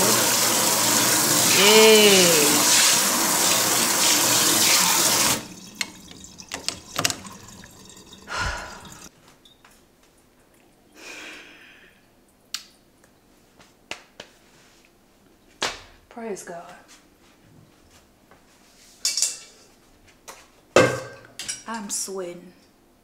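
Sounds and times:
faucet spraying into steel sink: 0:00.0 - 0:09.1.

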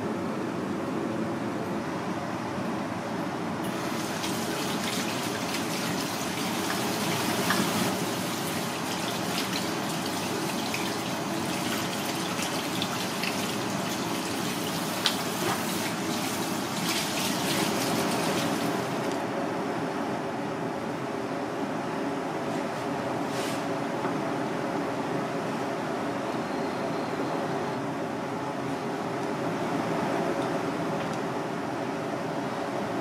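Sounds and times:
water spraying from faucet: 0:03.7 - 0:19.1.

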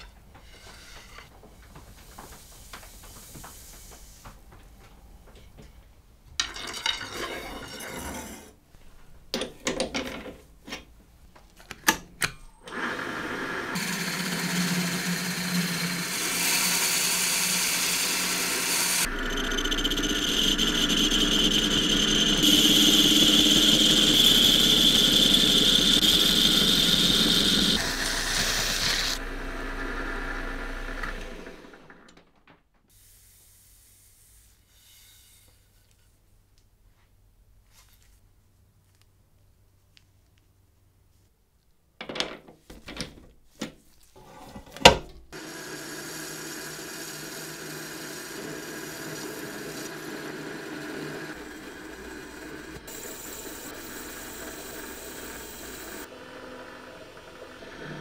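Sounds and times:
lathe running: 0:12.7 - 0:32.1, 0:45.4 - 0:58.0
wooden cues knocking and clattering: 0:42.0 - 0:43.8.

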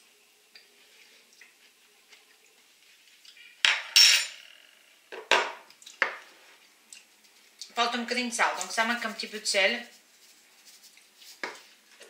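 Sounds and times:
metal spoon clinking on dish: 0:03.4 - 0:04.4.

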